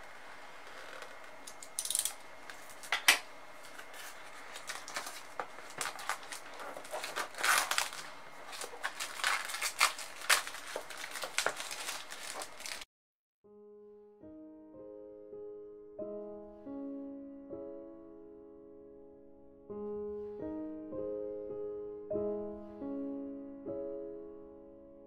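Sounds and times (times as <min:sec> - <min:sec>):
plastic wrap crinkling: 0:00.0 - 0:12.9.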